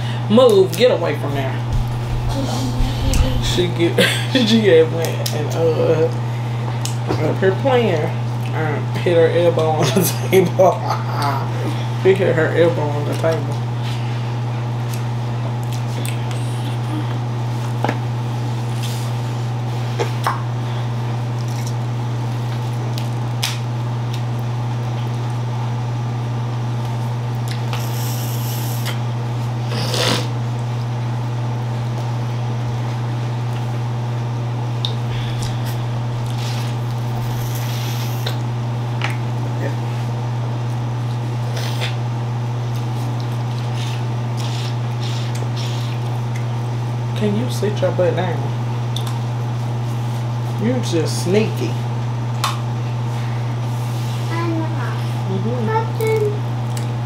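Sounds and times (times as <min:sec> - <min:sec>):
steady low hum: 0:00.0 - 0:57.0
sucking and smacking while eating: 0:14.8 - 0:18.0, 0:21.2 - 0:25.4, 0:26.8 - 0:29.1, 0:34.7 - 0:39.3, 0:40.6 - 0:46.6, 0:48.9 - 0:49.3, 0:56.0 - 0:57.0.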